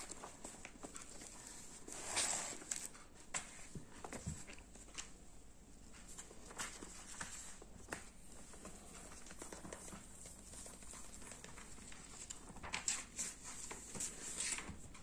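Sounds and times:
book pages flipping: 0.0s - 5.2s, 5.8s - 15.0s
kitten paws pattering on wood: 0.0s - 5.2s, 5.8s - 15.0s.

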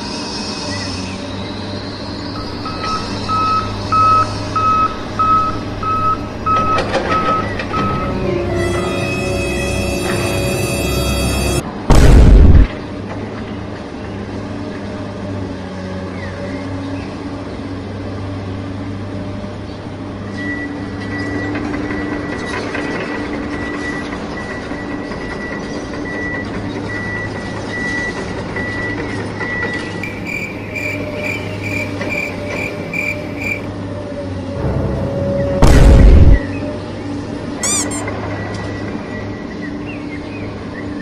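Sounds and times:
heavy vehicle engine running: 0.0s - 40.7s
reversing alarm beeping: 2.4s - 11.6s, 37.6s - 38.1s
high quick beeping: 37.6s - 38.1s.

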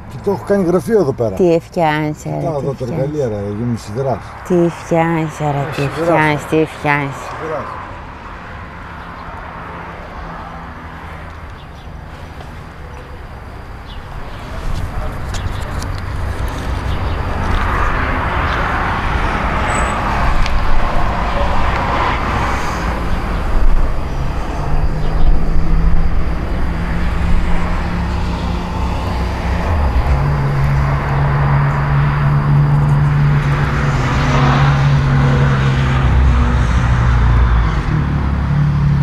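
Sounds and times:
outdoor background noise: 0.0s - 39.0s
engine running: 9.6s - 39.0s.

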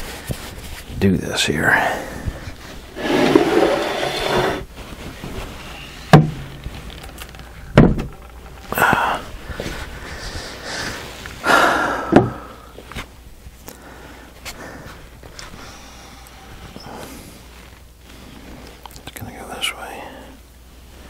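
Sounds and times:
casting scraping on workbench: 2.9s - 4.7s
heavy casting knocking on wood: 6.1s - 6.6s, 7.7s - 8.6s.

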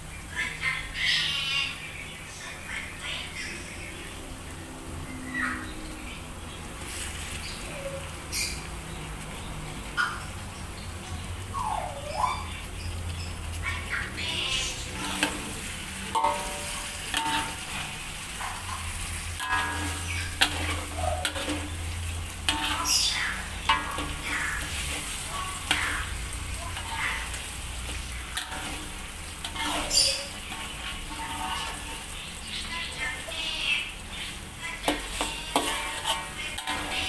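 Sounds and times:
oil sizzling: 0.0s - 37.0s
metal spatula scraping wok: 6.8s - 8.7s, 13.1s - 37.0s.

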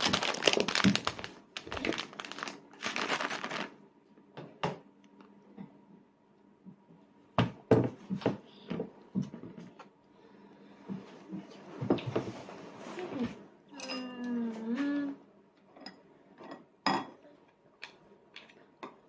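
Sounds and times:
rustling crinkle: 0.0s - 3.8s.

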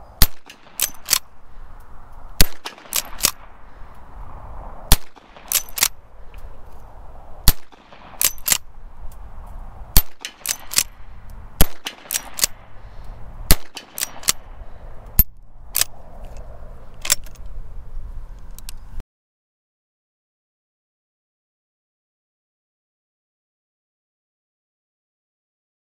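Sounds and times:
rifle shots: 0.2s - 1.3s, 2.4s - 3.8s, 4.9s - 6.0s, 7.4s - 8.7s, 10.0s - 14.6s
rifle lever clicking: 0.3s - 1.3s, 2.6s - 3.5s, 5.4s - 6.0s, 8.2s - 8.6s, 10.0s - 11.0s, 11.6s - 12.6s, 13.7s - 14.4s, 17.0s - 17.4s.

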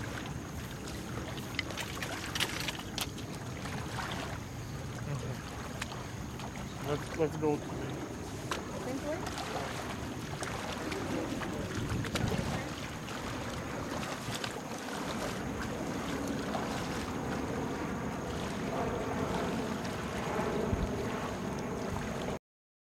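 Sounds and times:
waves lapping in shallow water: 0.0s - 22.4s
wind on microphone: 7.4s - 22.4s.

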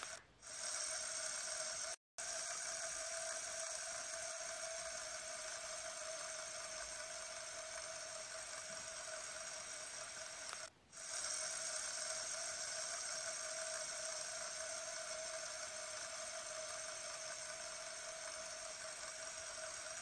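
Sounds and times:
fidget spinner whirring: 0.0s - 20.0s.

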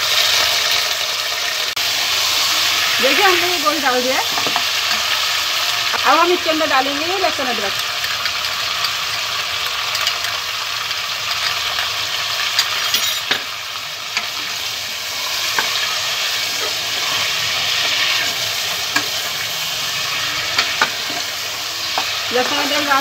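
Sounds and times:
meat sizzling in hot oil: 0.0s - 23.0s
spoon stirring and scraping: 7.8s - 10.4s, 11.3s - 22.9s.

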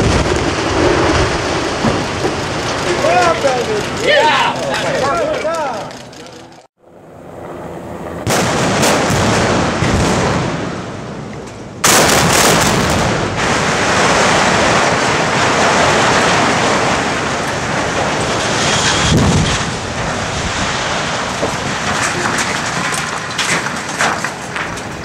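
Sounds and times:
explosive charges blasting: 0.0s - 4.2s, 8.2s - 11.2s, 11.8s - 25.0s
building collapse rumble: 0.0s - 6.6s, 7.7s - 25.0s.

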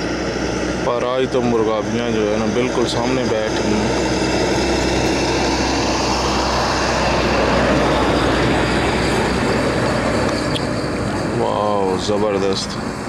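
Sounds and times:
constant low hum: 0.0s - 13.0s
steady rumbling noise: 0.0s - 13.0s.

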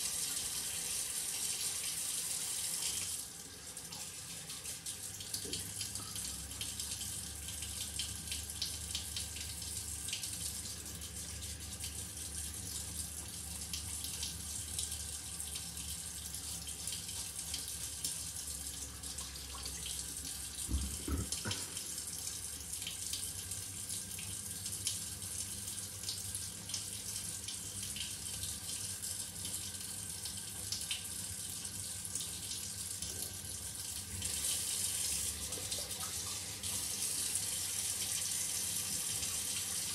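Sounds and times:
shower water running onto tile: 0.0s - 39.9s
low thump: 20.7s - 21.6s.

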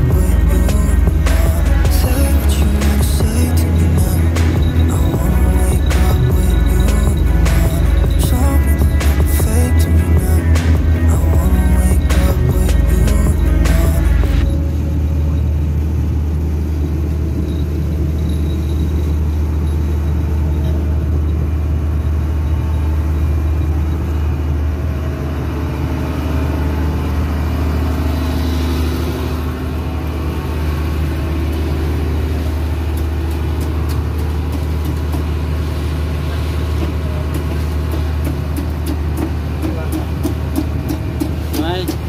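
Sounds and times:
boat engine droning: 0.0s - 42.0s.

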